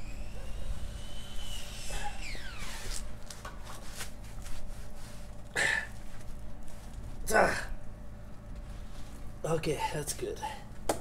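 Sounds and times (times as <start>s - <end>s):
falling squeak: 0.0s - 3.1s.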